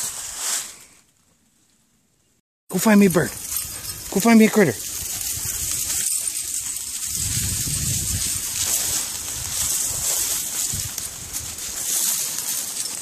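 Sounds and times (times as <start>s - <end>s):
dry brush crackling underfoot: 2.7s - 13.0s.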